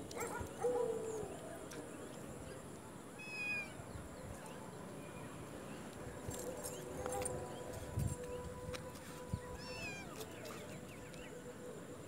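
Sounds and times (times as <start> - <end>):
kitten meowing: 3.2 - 3.8, 9.6 - 10.2.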